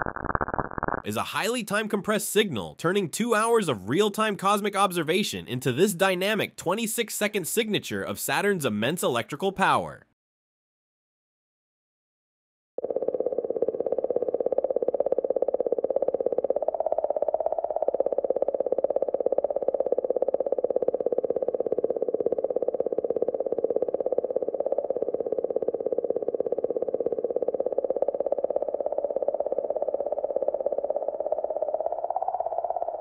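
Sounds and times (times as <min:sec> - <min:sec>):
rapidly pulsing wavering hum: 0:12.8 - 0:33.0.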